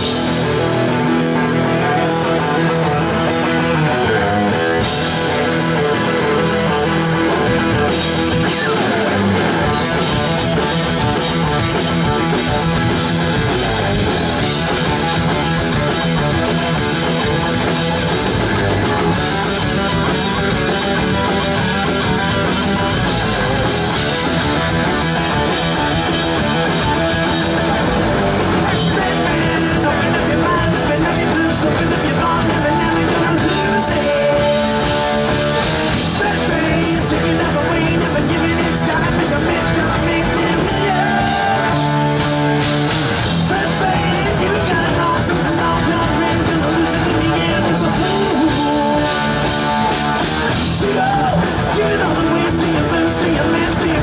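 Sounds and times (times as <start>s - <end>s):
heavy metal band playing: 0.0s - 54.0s
person singing: 8.3s - 9.8s, 28.7s - 35.3s, 35.9s - 42.2s, 43.5s - 49.6s, 50.7s - 54.0s.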